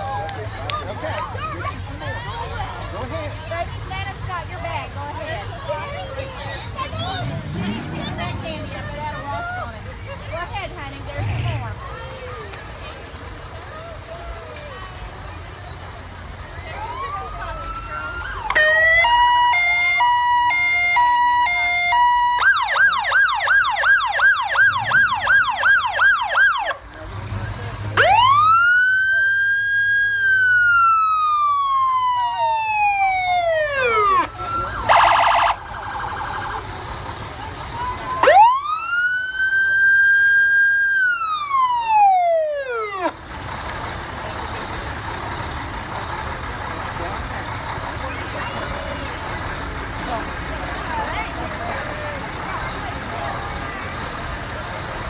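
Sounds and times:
wailing siren: 16.7s - 26.8s, 28.0s - 36.7s, 37.8s - 43.1s
electronic fire sirens: 16.9s - 26.8s, 28.0s - 36.7s, 37.8s - 43.1s.

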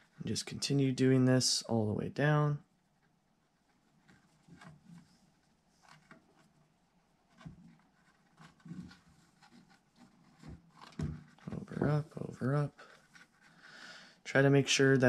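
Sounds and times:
string rustling through mesh: 2.6s - 13.7s.

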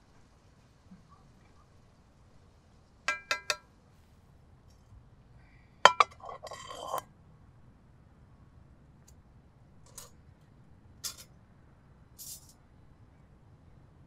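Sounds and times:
skillet clanking on grill grate: 3.1s - 3.6s, 5.9s - 7.0s.

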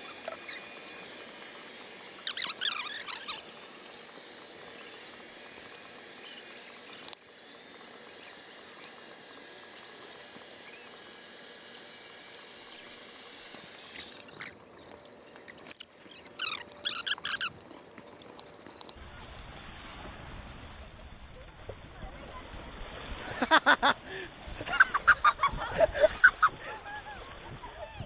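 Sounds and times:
sharp high squeaks: 2.2s - 3.5s, 15.6s - 17.6s
blower air hiss: 19.0s - 21.8s, 22.4s - 27.7s.

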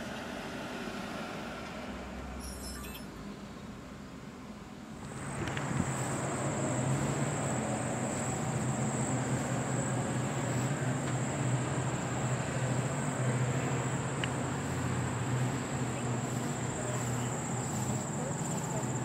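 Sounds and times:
even rushing noise: 5.0s - 19.0s
insects chirring: 5.1s - 19.0s.

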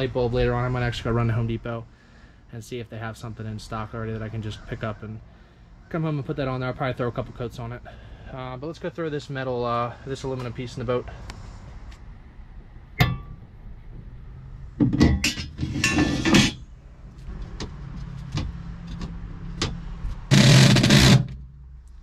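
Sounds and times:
metal grate clattering: 13.0s - 13.4s, 14.8s - 16.6s.

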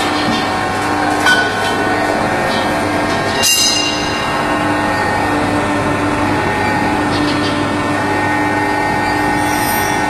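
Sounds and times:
machinery humming: 0.0s - 10.0s
steady high tone: 1.2s - 10.0s.

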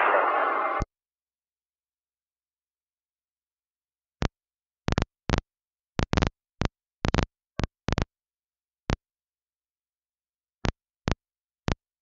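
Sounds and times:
radio static crackles: 0.0s - 0.8s, 6.0s - 7.3s.

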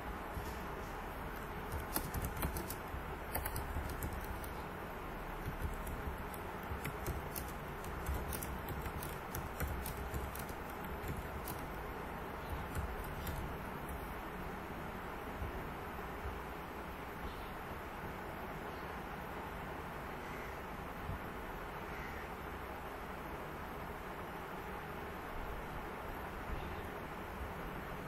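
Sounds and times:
keyboard key clicks: 1.3s - 4.6s, 5.4s - 11.8s, 12.4s - 14.0s.

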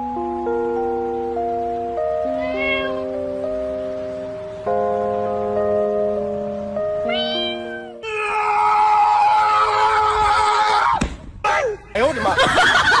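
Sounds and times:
background music: 0.0s - 8.6s
meow-like cry: 2.2s - 3.2s, 7.0s - 9.2s.

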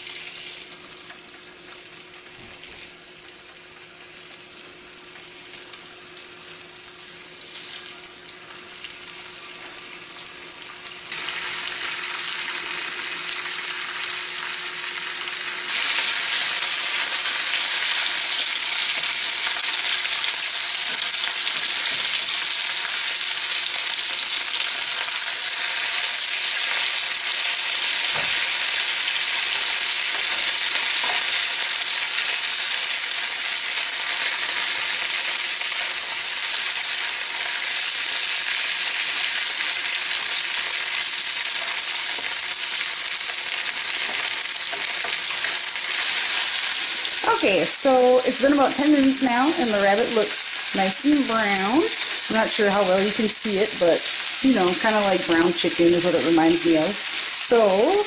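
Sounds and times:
meat sizzling in hot oil: 0.0s - 58.0s.

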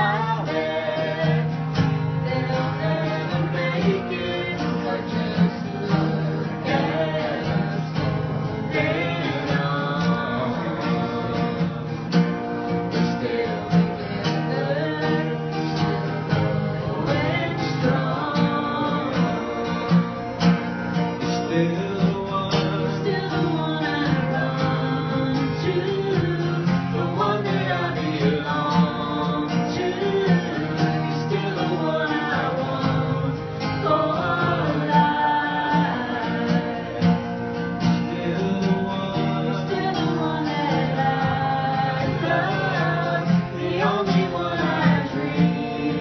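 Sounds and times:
person singing: 0.0s - 12.2s, 12.8s - 20.3s, 21.2s - 46.0s
guitar strumming: 0.0s - 46.0s.

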